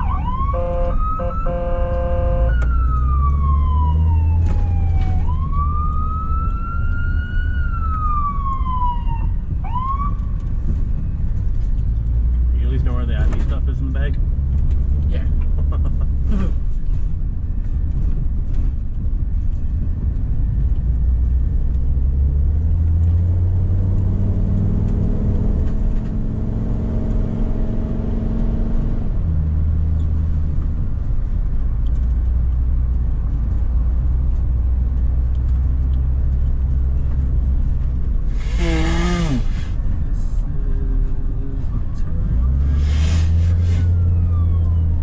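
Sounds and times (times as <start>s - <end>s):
wavering siren burst: 0.0s - 10.2s, 43.8s - 45.0s
engine and road rumble: 0.0s - 45.0s.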